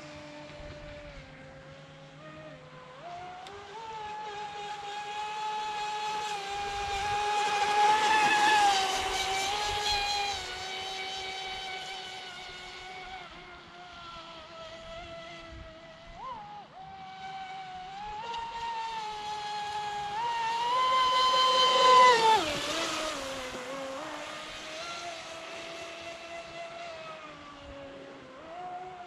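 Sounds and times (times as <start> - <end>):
electric boat motor whining: 0.0 - 29.0.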